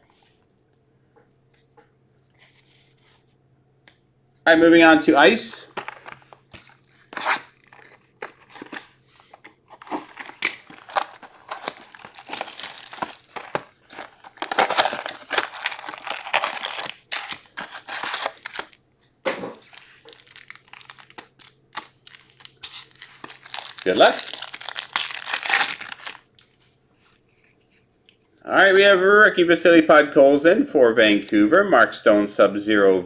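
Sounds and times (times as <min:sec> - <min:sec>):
foil packs rustling: 0:05.7 - 0:18.8, 0:19.6 - 0:26.3
plastic shrink wrap crinkling: 0:05.7 - 0:18.8, 0:19.6 - 0:28.2
cardboard box opening: 0:07.0 - 0:18.6.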